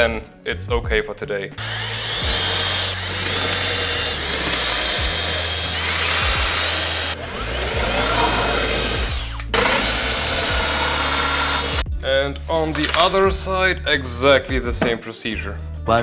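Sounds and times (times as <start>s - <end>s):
cordless drill boring into wood: 1.6s - 11.8s.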